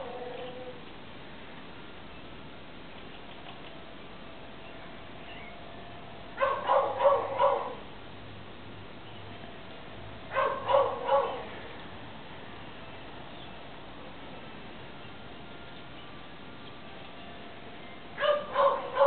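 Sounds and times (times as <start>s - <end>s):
dog barking: 6.4s - 7.8s, 10.3s - 11.5s, 18.2s - 19.0s.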